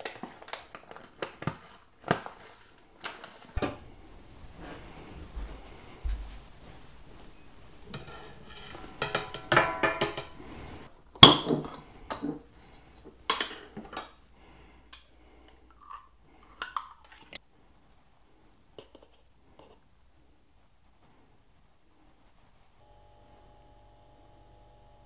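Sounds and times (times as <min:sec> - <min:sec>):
kitchenware clinking and knocking: 0:03.6 - 0:03.9, 0:07.2 - 0:12.5.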